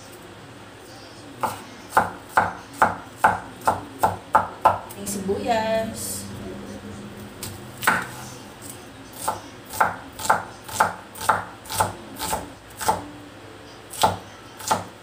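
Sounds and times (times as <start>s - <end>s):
cleaver chopping on wooden board: 9.2s - 13.0s, 14.0s - 14.9s.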